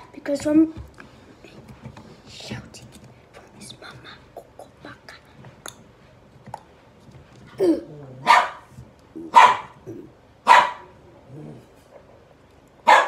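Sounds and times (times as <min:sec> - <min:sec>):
dog barking: 0:08.2 - 0:08.7, 0:09.3 - 0:09.8, 0:10.4 - 0:10.9.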